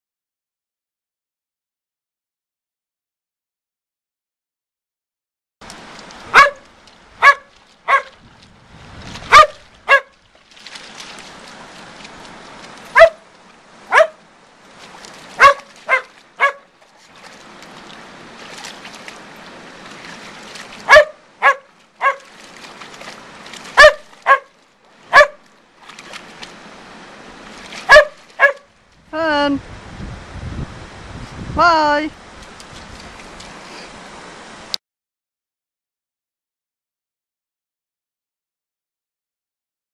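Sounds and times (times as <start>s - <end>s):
dogs barking: 6.3s - 8.2s, 9.3s - 10.2s, 12.9s - 13.3s, 13.9s - 14.2s, 15.3s - 16.7s, 20.8s - 22.3s, 23.7s - 25.4s, 27.8s - 28.7s.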